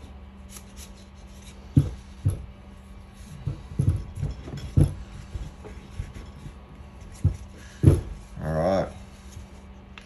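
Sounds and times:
parts knocking on workbench: 0:01.7 - 0:02.5, 0:03.4 - 0:08.3.

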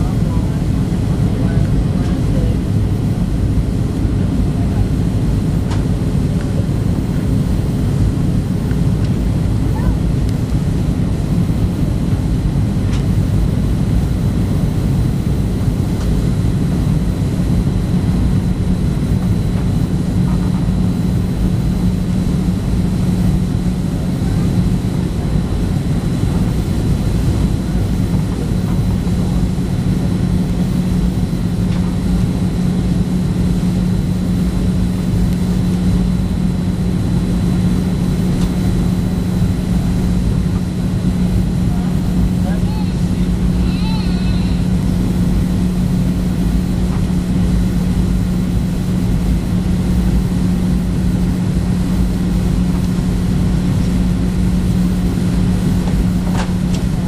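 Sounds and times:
jet engine drone in cabin: 0:00.0 - 0:57.0.

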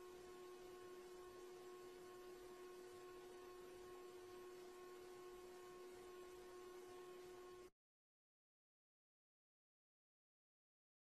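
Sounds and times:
faint electrical hum: 0:00.0 - 0:07.7.

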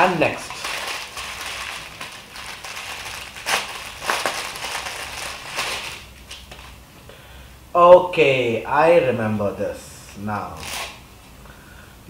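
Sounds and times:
plastic packaging crinkling: 0:00.0 - 0:06.8, 0:10.6 - 0:11.0.

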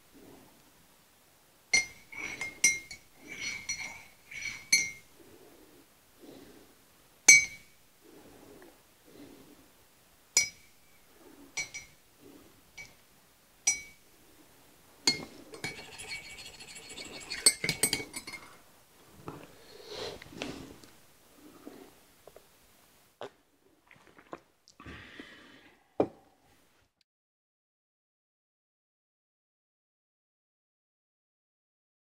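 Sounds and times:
spoon clinking in ceramic mug: 0:15.1 - 0:18.6
person sipping from mug: 0:19.2 - 0:22.5, 0:23.2 - 0:26.2.

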